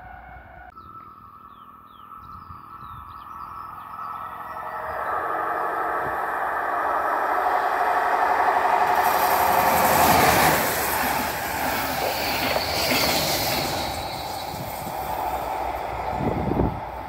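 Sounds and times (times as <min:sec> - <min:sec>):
electric train passing at speed: 0:00.0 - 0:17.0
wheel and rail rush: 0:02.7 - 0:17.0.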